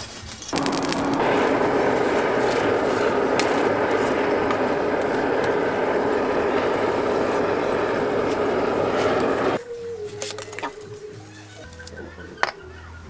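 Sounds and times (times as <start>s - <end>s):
blower motor hum: 0.6s - 9.6s
rush of air from blower: 0.6s - 9.6s.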